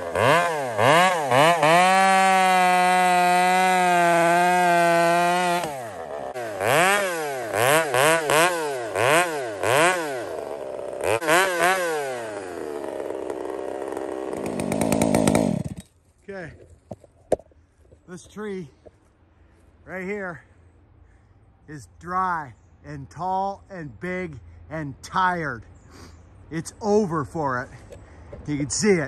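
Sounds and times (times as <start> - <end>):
chainsaw revving: 0.0 - 15.9.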